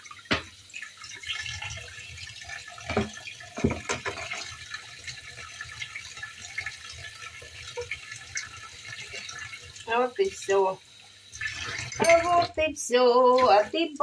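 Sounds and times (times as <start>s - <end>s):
tap running into steel sink: 0.2s - 0.6s, 2.8s - 4.5s
cutting board knocking in sink: 0.3s - 0.5s, 2.9s - 4.3s.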